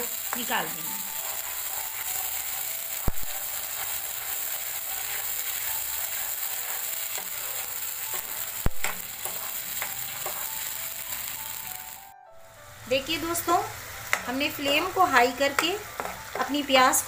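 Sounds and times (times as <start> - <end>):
paste sizzling in hot oil: 0.0 - 17.0
spatula scraping pan: 1.0 - 10.7.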